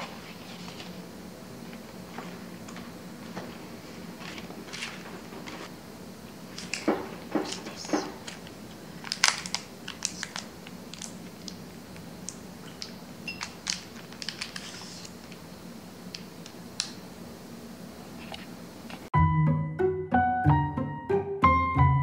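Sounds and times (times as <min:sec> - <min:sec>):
plastic packaging crinkling: 0:06.5 - 0:15.4.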